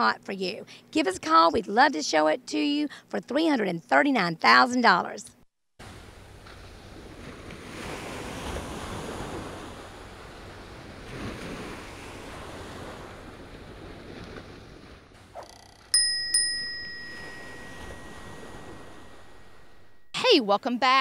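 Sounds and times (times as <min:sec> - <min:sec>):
small bell ringing: 0:15.4 - 0:20.0.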